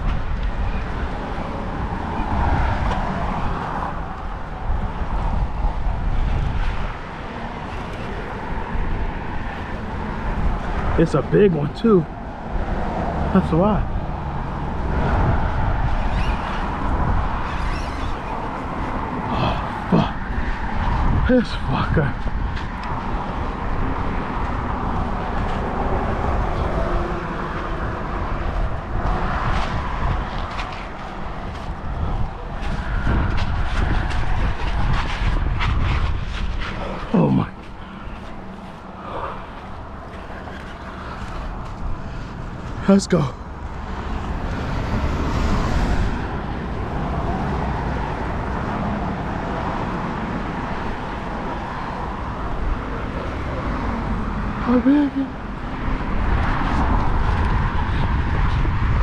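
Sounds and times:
wind on microphone: 0.0 - 11.0, 12.1 - 42.8, 43.4 - 59.0
road traffic rumble: 0.0 - 59.0.

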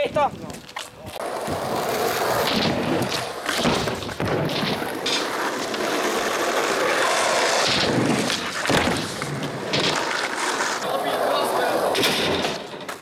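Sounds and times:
skateboard wheels rumbling on concrete: 0.0 - 13.0
skateboard knocks: 2.4 - 6.2, 7.5 - 10.2.

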